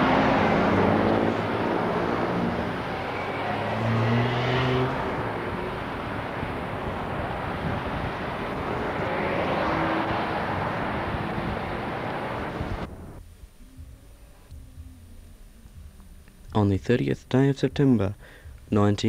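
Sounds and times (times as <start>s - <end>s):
cars driving past: 0.0s - 13.2s
low vehicle engine note: 0.0s - 16.8s.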